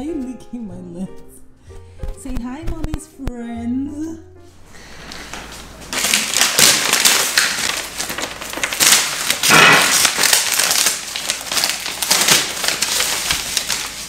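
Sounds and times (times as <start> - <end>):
paper packing crumpling: 5.1 - 14.0.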